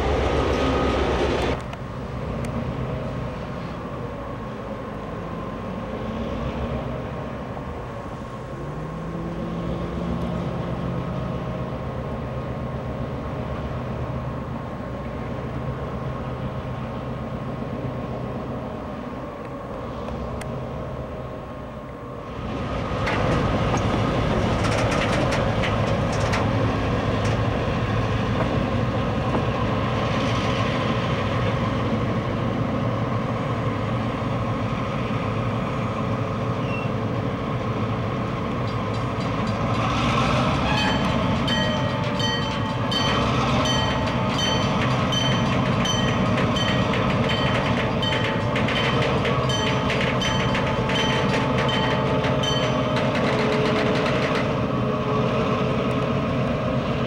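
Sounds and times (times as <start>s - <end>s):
diesel locomotive engines: 0.0s - 57.0s
train clicks and rattles: 22.3s - 57.0s.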